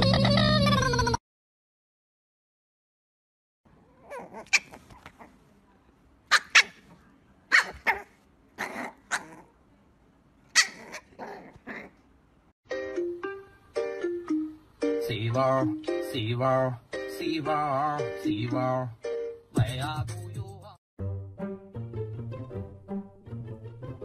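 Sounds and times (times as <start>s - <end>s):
puppy yapping: 3.9s - 5.4s, 6.3s - 6.9s, 7.5s - 9.6s, 10.5s - 12.0s.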